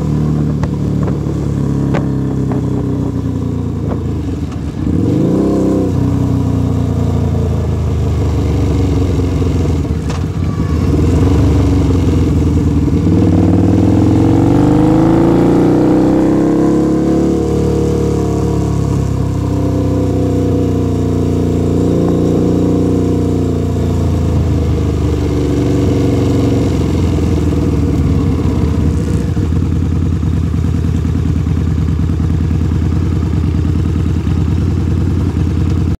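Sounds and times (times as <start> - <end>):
motorcycle engine rumbling: 0.0 - 36.0.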